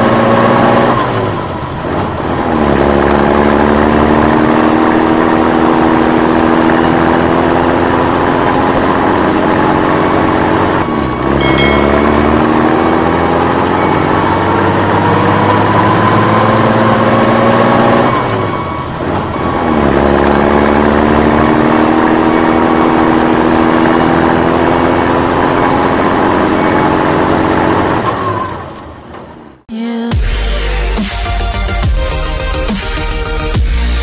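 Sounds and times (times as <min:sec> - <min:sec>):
vehicle engine revving up: 0:14.2 - 0:18.3, 0:19.6 - 0:28.1.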